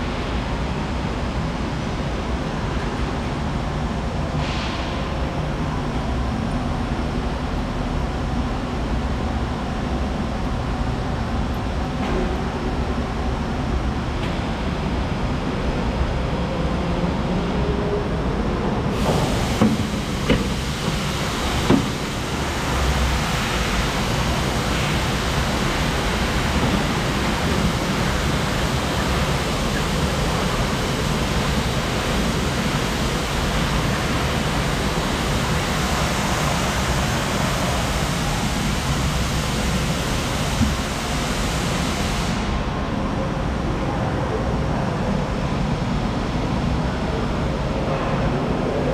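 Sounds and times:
industrial hiss and rumble: 0.0s - 48.9s
sharp knocks: 21.6s - 22.0s.

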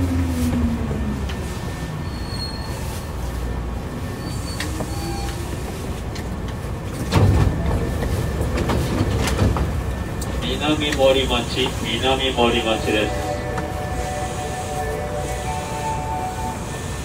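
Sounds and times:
train wheels rumbling on rail: 0.0s - 17.0s
high wheel squeals: 1.7s - 5.7s
train clatter: 4.3s - 14.1s.

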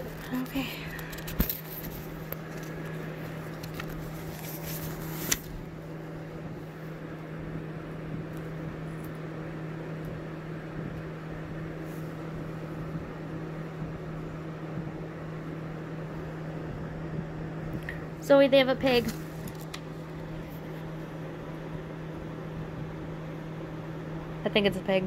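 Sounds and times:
low mechanical hum: 0.0s - 25.0s
rustling and handling clicks: 0.1s - 5.5s.

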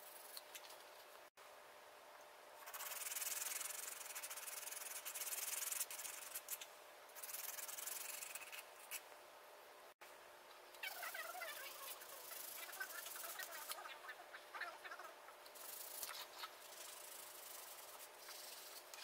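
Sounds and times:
sanding stick rubbing wood: 11.6s - 13.8s, 15.6s - 18.9s.

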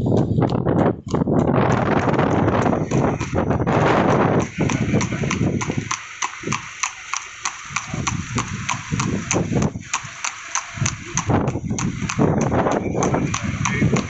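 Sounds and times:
low rumble: 0.0s - 6.8s
horse hooves on asphalt: 0.0s - 14.0s.

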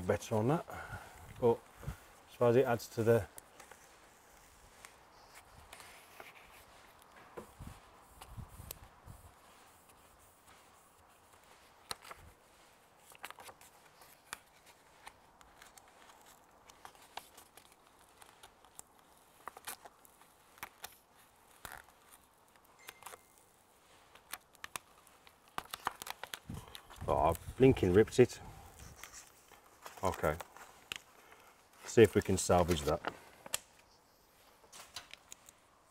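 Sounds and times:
paper backing crinkling: 1.4s - 35.9s
thin vinyl tearing: 12.9s - 28.1s.

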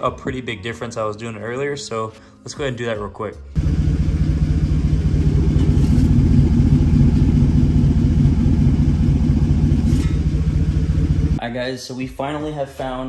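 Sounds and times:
truck exhaust idling: 3.6s - 11.4s.

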